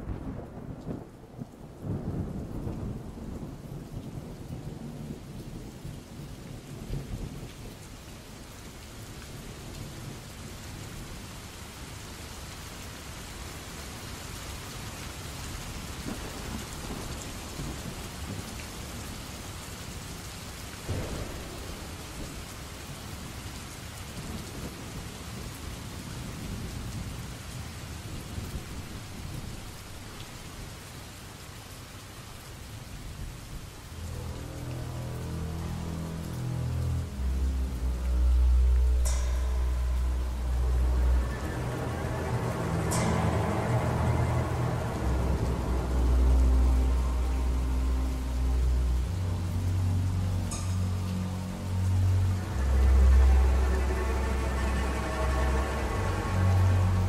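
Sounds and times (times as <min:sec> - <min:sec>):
steady rain: 0:00.0 - 0:57.0
thunder rolling: 0:20.8 - 0:27.2
sharp thunderclap: 0:20.9 - 0:25.4.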